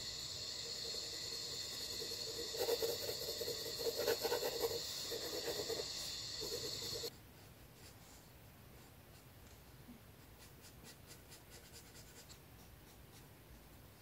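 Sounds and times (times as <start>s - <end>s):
high-pitched chirring hiss: 0.0s - 7.1s
pencil scratching on paper: 0.8s - 9.6s, 10.2s - 13.7s.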